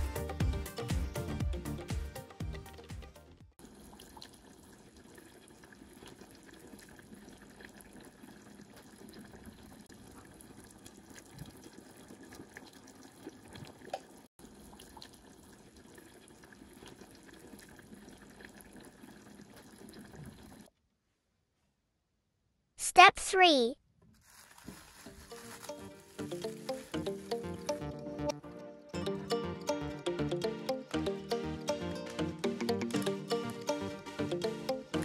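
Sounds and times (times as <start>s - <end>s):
music: 0.0s - 3.6s, 25.1s - 35.0s
syrup bubbling in pot: 3.6s - 20.7s.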